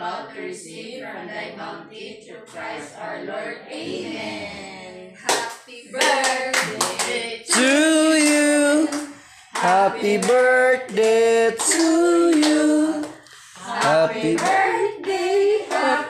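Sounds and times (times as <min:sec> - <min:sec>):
people talking: 0:00.0 - 0:16.0
voices singing: 0:00.0 - 0:16.0
group clapping: 0:05.2 - 0:16.0.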